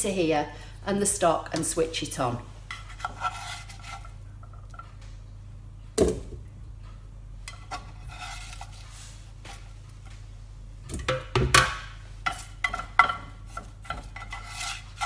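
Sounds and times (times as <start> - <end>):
spatula scraping baking tray: 2.6 - 4.2, 7.5 - 10.1, 12.2 - 15.0.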